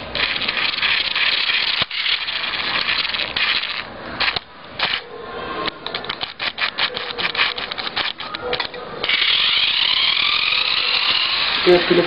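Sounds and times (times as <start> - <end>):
electric motor whirring: 0.0 - 5.0, 6.2 - 12.0
clicking and rattling: 5.7 - 11.3.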